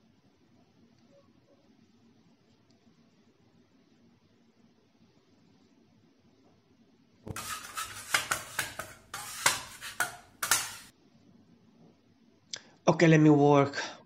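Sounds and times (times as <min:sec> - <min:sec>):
metal scraper scraping wooden board: 0:07.3 - 0:10.9.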